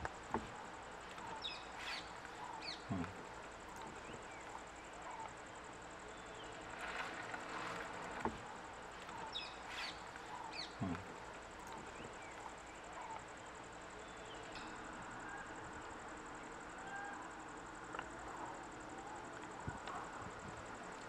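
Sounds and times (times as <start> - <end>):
high insect buzz: 0.0 - 18.8
bird chirps: 0.9 - 7.8, 8.9 - 17.4.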